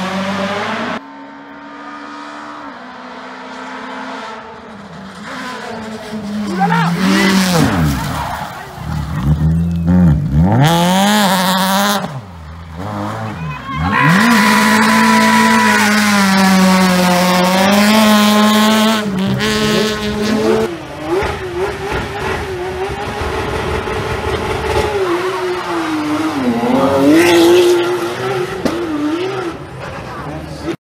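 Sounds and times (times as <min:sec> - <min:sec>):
rally car engine at high revs: 0:00.0 - 0:30.8.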